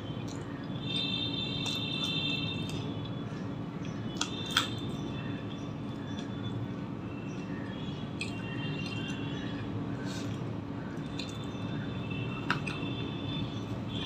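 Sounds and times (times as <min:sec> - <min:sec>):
wet chewing: 0:00.2 - 0:03.2, 0:07.3 - 0:11.7.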